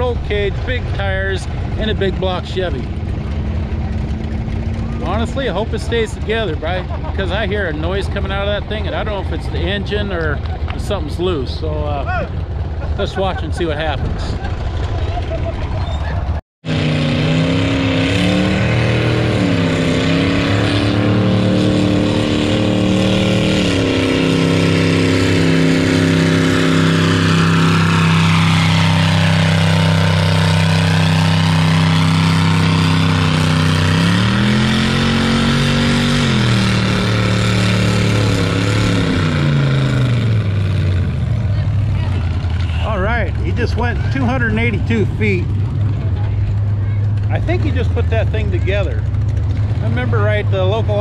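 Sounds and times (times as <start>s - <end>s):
tractor engine running under load: 0.0s - 7.2s, 48.9s - 50.3s.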